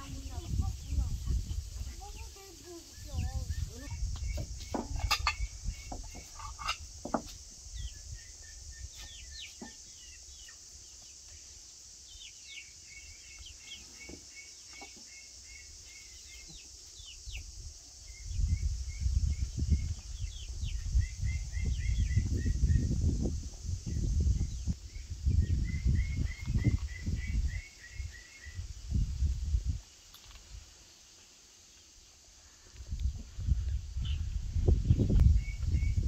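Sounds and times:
small birds chirping: 0.0 - 36.0
plates clinking on table: 5.0 - 5.4.

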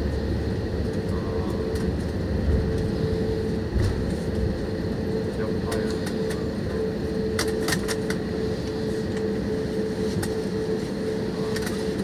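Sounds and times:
jet engine and airflow rumble: 0.0 - 12.0
light clicks in cabin: 0.9 - 3.0, 5.4 - 9.4, 10.0 - 10.8, 11.4 - 12.0.

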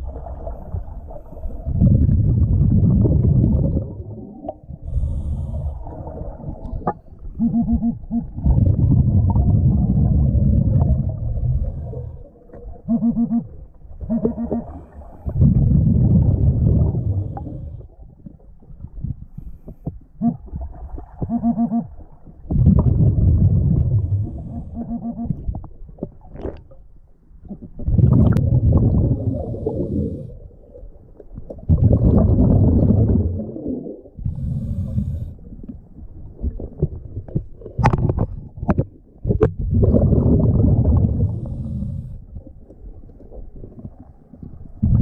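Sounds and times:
rush of exhaled bubbles: 0.0 - 19.0, 20.3 - 26.8, 27.4 - 45.0
regulator honking inhale: 34.3 - 35.4.

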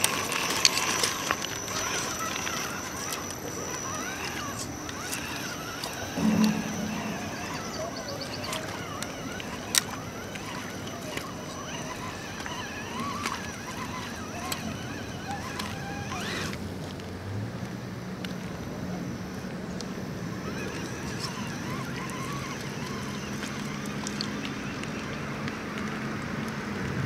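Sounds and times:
electric motor whining: 0.0 - 16.6, 20.0 - 25.2
short loud low sound: 6.2 - 7.9.

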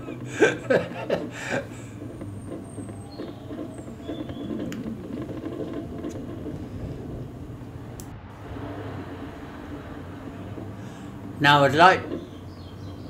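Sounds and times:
sharp clicks: 0.0 - 8.2
mobility scooter motor hum: 0.0 - 13.0
scooter rattling over ground: 0.0 - 13.0.

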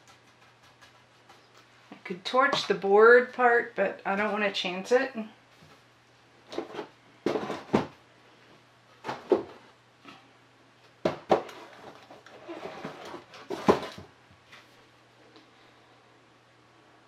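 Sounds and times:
board knocking and clunking: 6.5 - 8.0, 9.0 - 9.6, 11.0 - 14.1.

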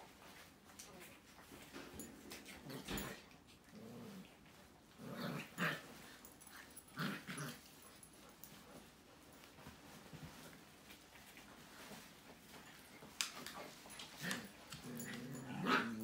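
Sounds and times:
puppies growling and yipping: 14.2 - 16.0.

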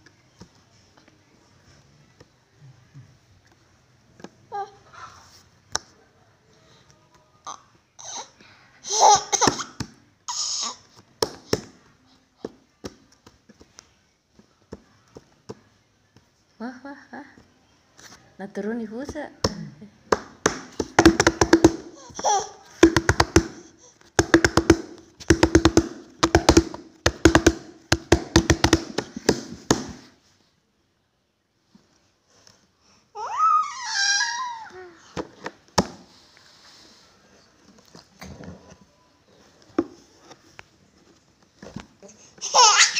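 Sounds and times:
small hands tapping on wood: 20.1 - 22.0, 22.8 - 30.0
baby slapping wooden tabletop: 20.1 - 30.1
baby laughing: 22.0 - 22.7, 42.4 - 42.9.

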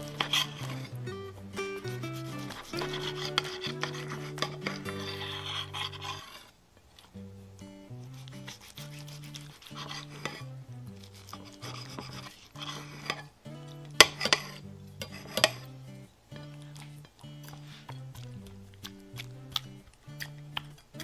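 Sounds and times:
knife sawing through steak: 1.8 - 6.5, 8.1 - 10.4, 11.1 - 13.2.

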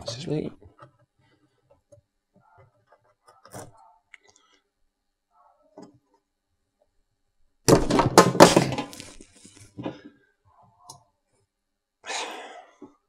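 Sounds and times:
vegetables clattering into plastic tank: 7.7 - 9.2.

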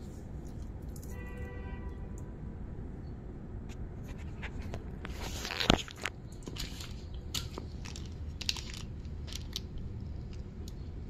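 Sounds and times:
handling rustle: 4.1 - 10.5
sharp clicks and crackles: 4.6 - 11.0.

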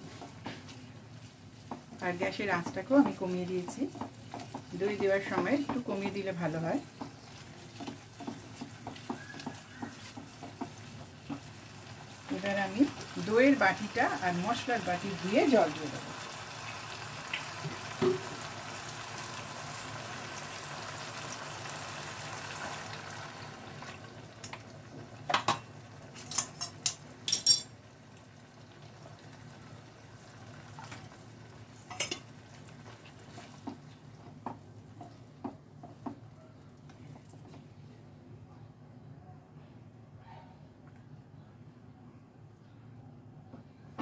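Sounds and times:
food sizzling in oil: 0.0 - 27.0
stirring knocks: 1.6 - 15.8, 32.8 - 36.3.

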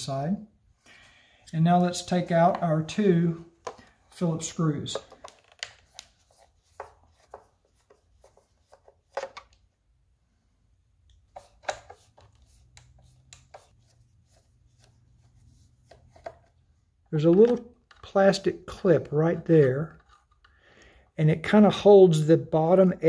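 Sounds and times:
screwdriver clicks and scrapes: 19.9 - 20.6.

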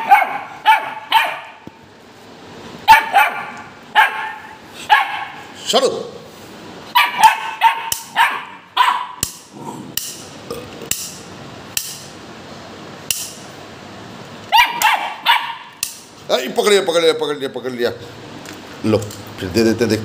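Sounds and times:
dog barking sharply: 0.0 - 1.6, 2.8 - 5.5, 6.9 - 9.3, 14.5 - 15.8.

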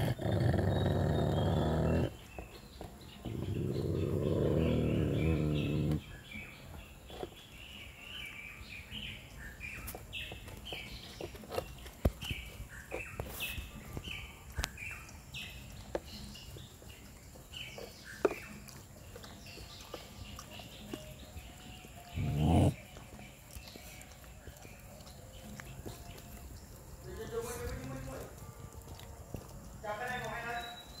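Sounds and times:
dog growling: 0.0 - 2.4, 3.2 - 6.1, 18.4 - 26.4
bird chirping: 0.0 - 31.0.

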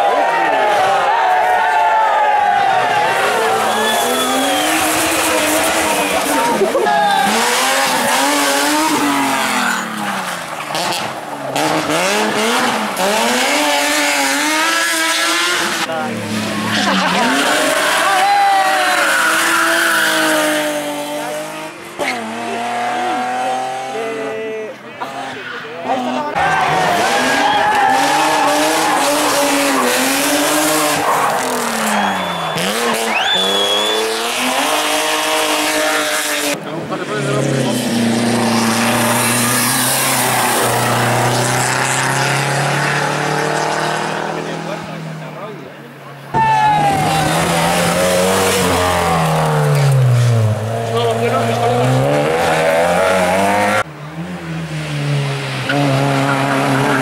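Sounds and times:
rally car engine revving: 2.5 - 57.0
tyre squeals: 3.4 - 10.3, 27.2 - 34.4.

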